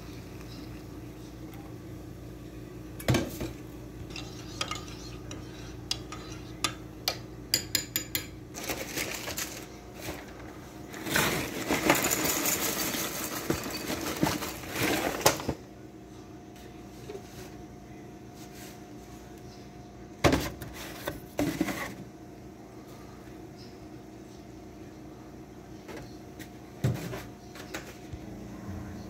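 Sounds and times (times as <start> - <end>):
crockery and cutlery clinking: 4.1 - 8.4
cereal rattling into ceramic bowl: 11.1 - 15.2.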